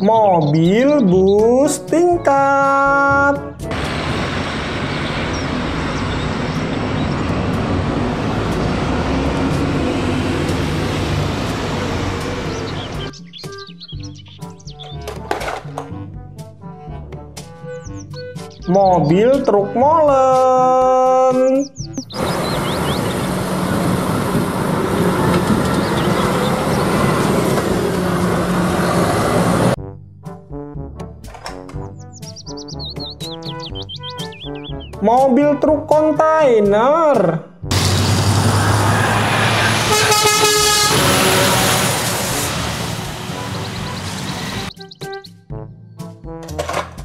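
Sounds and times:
bus engine running: 0:03.6 - 0:13.2, 0:22.0 - 0:29.8, 0:37.7 - 0:44.8
road traffic noise: 0:03.6 - 0:15.6, 0:21.7 - 0:29.8, 0:37.7 - 0:45.1
concrete mixer truck rumbling: 0:03.7 - 0:13.1, 0:22.0 - 0:29.8, 0:37.7 - 0:44.7.

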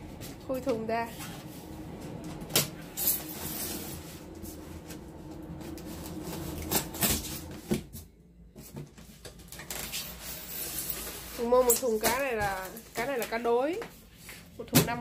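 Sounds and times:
low steady hum: 0:00.0 - 0:09.5.

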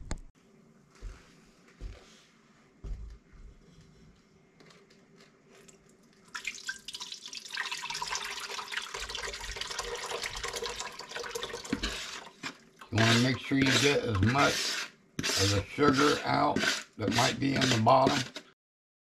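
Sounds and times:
thick jelly pouring into pot: 0:05.6 - 0:18.3.

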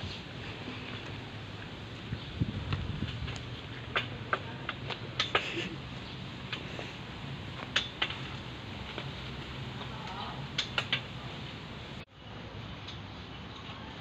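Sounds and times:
swing chains clicking and creaking: 0:03.0 - 0:11.5.

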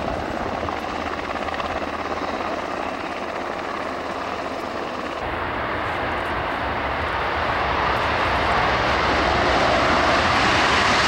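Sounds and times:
jet engines roaring: 0:00.0 - 0:11.0.

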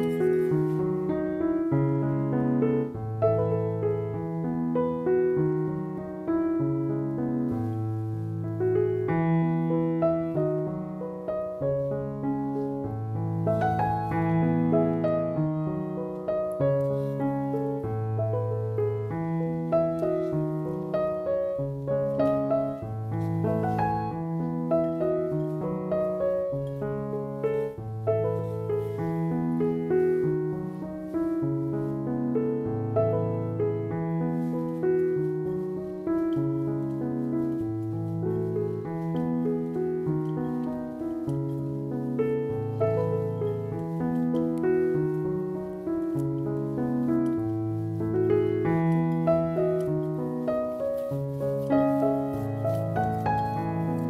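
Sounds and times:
gentle piano melody: 0:00.0 - 0:54.0.

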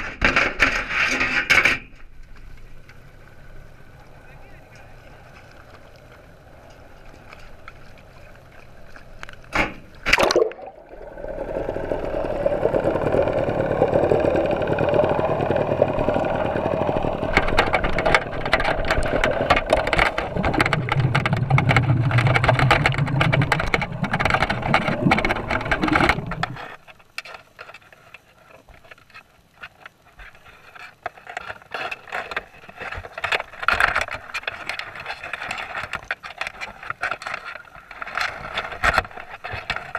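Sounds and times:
underwater clicks and scratches: 0:00.0 - 0:39.9
muffled underwater rumble and hiss: 0:02.3 - 0:39.9
net splashing into water: 0:10.0 - 0:11.5.

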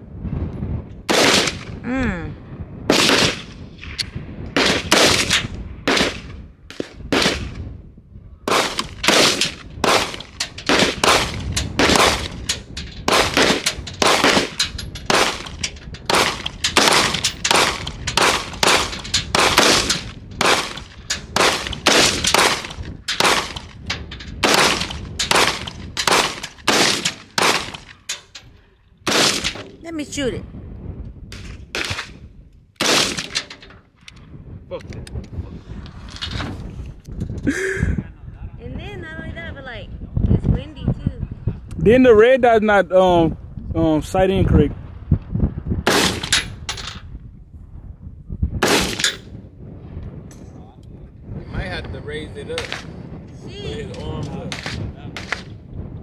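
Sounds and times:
gunshots: 0:01.1 - 0:01.8, 0:02.9 - 0:07.6, 0:08.5 - 0:28.2, 0:29.1 - 0:29.8, 0:31.4 - 0:32.2, 0:32.8 - 0:33.6, 0:45.8 - 0:46.9, 0:48.6 - 0:49.2, 0:52.5 - 0:52.9, 0:54.4 - 0:55.5.

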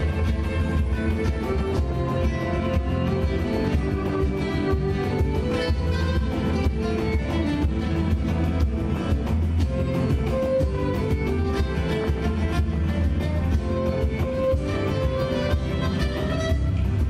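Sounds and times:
acoustic guitars: 0:00.0 - 0:17.0
cajon beat: 0:00.0 - 0:17.0
violin melody: 0:00.0 - 0:17.0.

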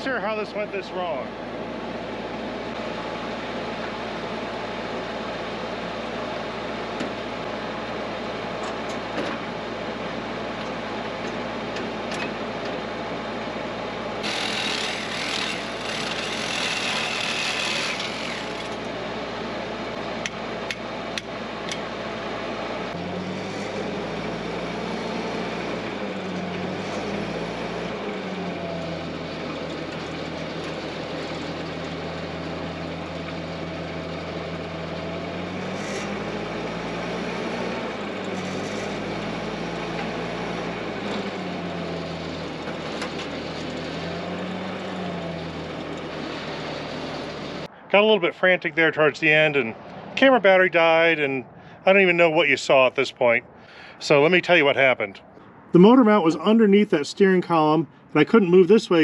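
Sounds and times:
wavering motor hum: 0:01.0 - 0:47.8
saw rasping on steel: 0:14.2 - 0:18.9.

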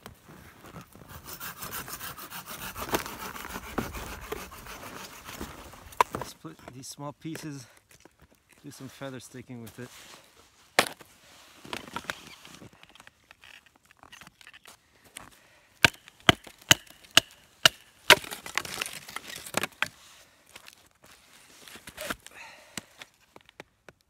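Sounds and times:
knife chopping wooden stick: 0:01.3 - 0:06.2.

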